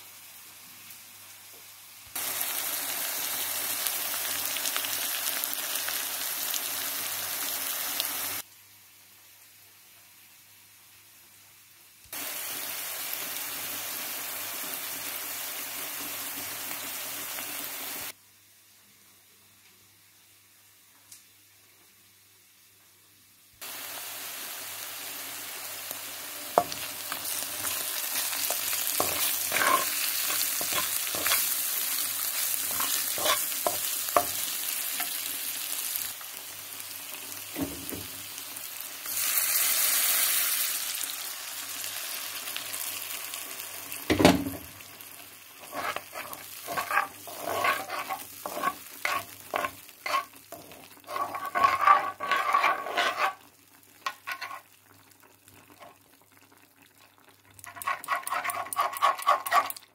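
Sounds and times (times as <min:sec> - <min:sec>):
onions sizzling in oil: 0:00.0 - 0:18.6, 0:23.2 - 0:59.9
water poured into hot pan hissing: 0:12.2 - 0:18.2, 0:34.2 - 0:45.7.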